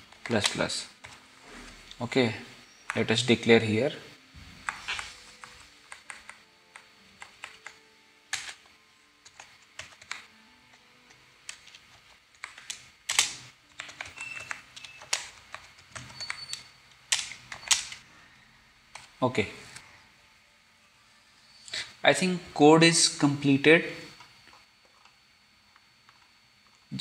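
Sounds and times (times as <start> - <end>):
keyboard typing: 4.6 - 18.0.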